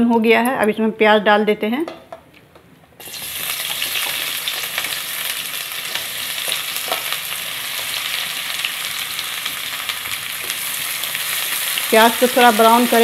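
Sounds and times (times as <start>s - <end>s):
onions sizzling in oil: 3.0s - 13.0s.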